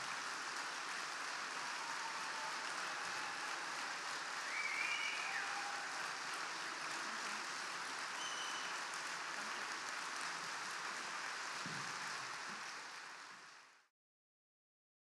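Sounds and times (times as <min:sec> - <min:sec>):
high cheer: 0:00.0 - 0:10.0
audience clapping: 0:00.0 - 0:13.9.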